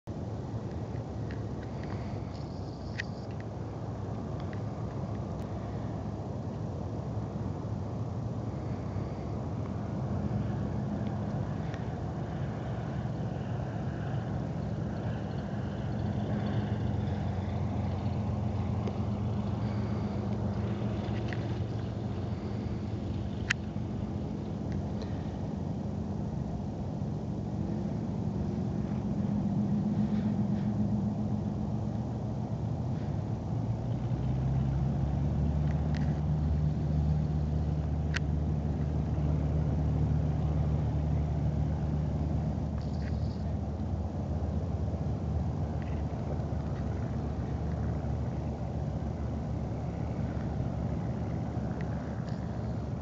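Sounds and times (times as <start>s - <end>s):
distant plane engine and propeller: 0.0s - 53.0s.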